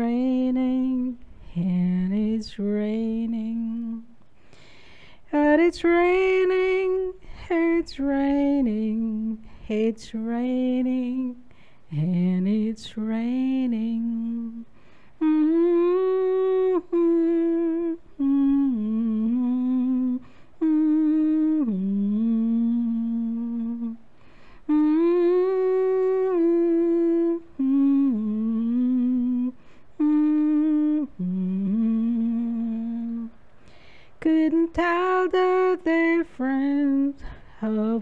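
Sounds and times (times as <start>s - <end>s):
woman humming: 15.2s - 24.0s, 24.7s - 33.3s.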